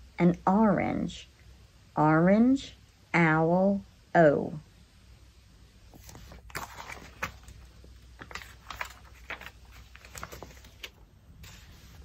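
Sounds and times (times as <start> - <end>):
book pages turning: 5.9 - 12.0.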